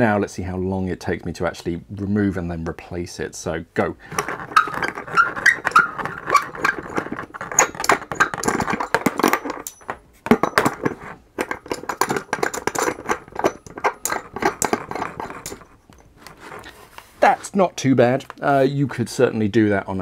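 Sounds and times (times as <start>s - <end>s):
metallic clicks and rattles: 4.1s - 16.7s.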